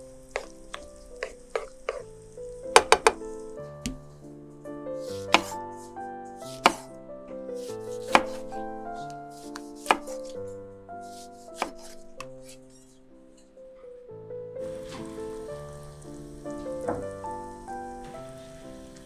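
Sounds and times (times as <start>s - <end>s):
knife hitting wooden cutting board: 2.8s - 3.2s, 3.8s - 4.1s, 5.1s - 5.6s, 6.5s - 6.9s, 8.1s - 8.4s, 9.6s - 10.2s.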